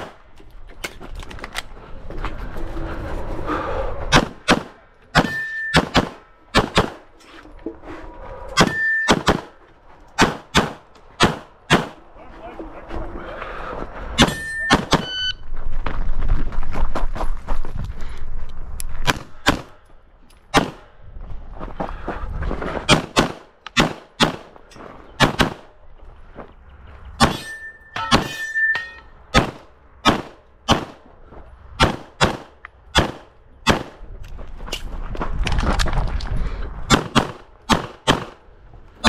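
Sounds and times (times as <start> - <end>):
pistol shots: 4.1 - 7.0, 8.6 - 9.6, 10.2 - 12.0, 14.2 - 15.2, 20.5 - 20.8, 22.9 - 24.5, 25.2 - 25.7, 29.3 - 31.0, 31.8 - 34.0, 36.9 - 38.4
steady ringing tone: 14.2 - 15.4, 27.3 - 29.1.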